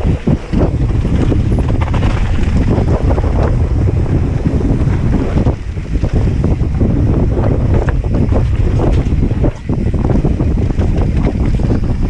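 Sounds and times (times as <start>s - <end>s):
bike tyres rattling over trail: 0.0s - 12.0s
low rumble: 0.0s - 12.0s
wind buffeting microphone: 0.0s - 12.0s.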